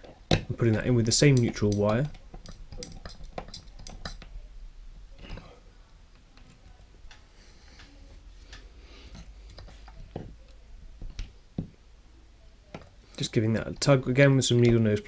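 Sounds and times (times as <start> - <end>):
tool clicks and taps: 0.0 - 4.3.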